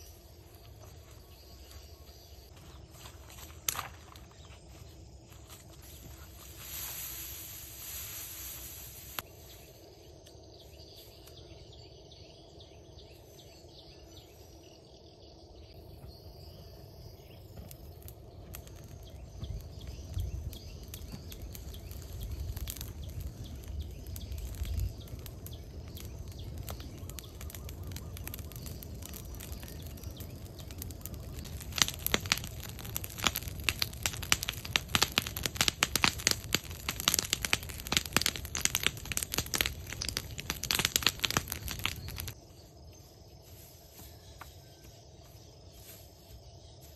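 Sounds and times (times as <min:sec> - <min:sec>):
fire crackling and popping: 0:00.0 - 0:09.4, 0:16.4 - 0:42.4
dry straw rustling: 0:02.5 - 0:09.8, 0:30.7 - 0:42.4
rush of flame: 0:06.2 - 0:09.3, 0:17.8 - 0:42.4.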